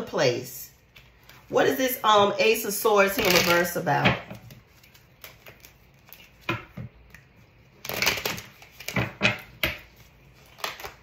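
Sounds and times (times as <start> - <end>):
cards shuffling: 9.7 - 11.0.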